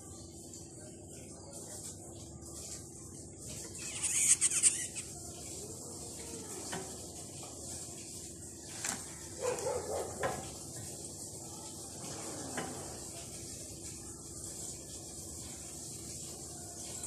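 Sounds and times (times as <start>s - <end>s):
short animal calls: 3.7s - 5.1s.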